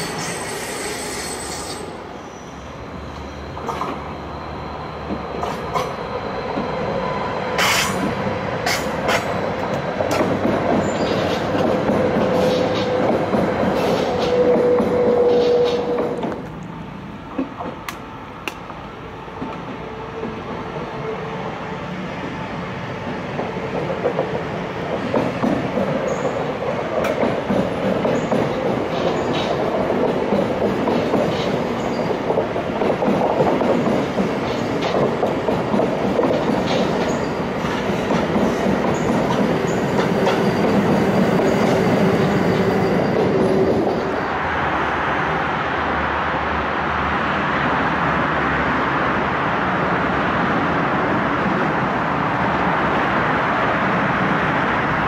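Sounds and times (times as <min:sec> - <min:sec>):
road traffic rushing: 0:00.0 - 0:55.0
train wheels clattering over rail joints: 0:07.6 - 0:16.6, 0:23.4 - 0:44.1.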